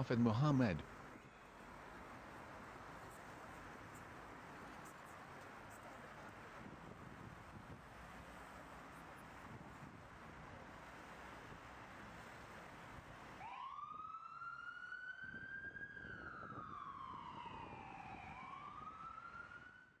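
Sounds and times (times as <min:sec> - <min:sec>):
ambulance siren wailing: 0:13.3 - 0:20.0.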